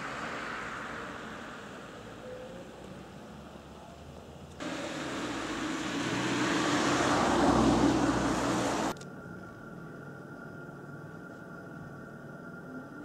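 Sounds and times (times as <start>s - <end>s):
road vehicle passing: 0.0s - 9.0s
faint outdoor hiss: 0.0s - 13.0s.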